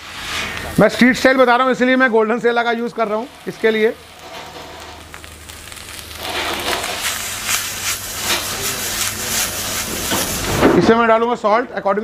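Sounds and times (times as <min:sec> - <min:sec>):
food sizzling in a wok: 0:00.0 - 0:10.8
spatula scraping wok: 0:05.7 - 0:10.6.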